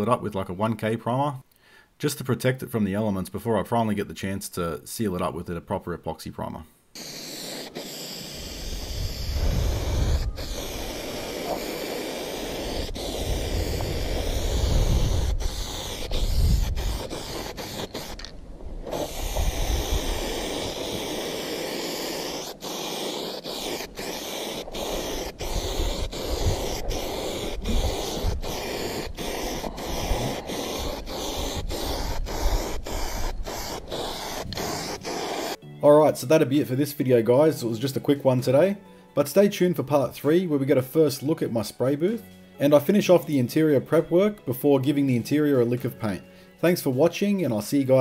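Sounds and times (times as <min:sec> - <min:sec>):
aerosol can spraying: 0:07.0 - 0:35.6
wind gusts on microphone: 0:08.6 - 0:11.7, 0:12.6 - 0:17.6, 0:18.4 - 0:20.8, 0:25.3 - 0:35.1.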